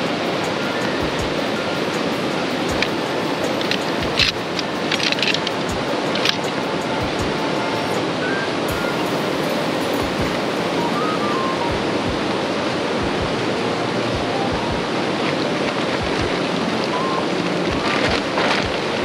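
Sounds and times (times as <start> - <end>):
fast-flowing stream: 0.0 - 19.0
wind buffeting microphone: 0.0 - 19.0.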